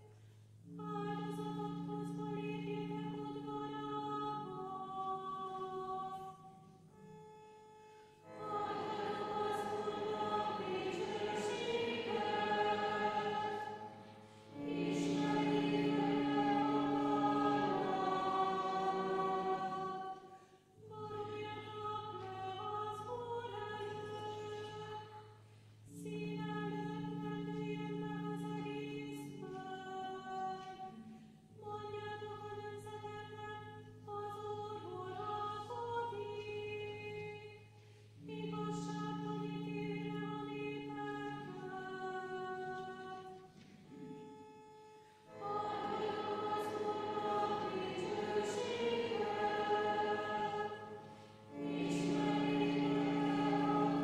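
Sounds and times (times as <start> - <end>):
choir singing a hymn: 8.3 - 20.4, 45.3 - 54.0.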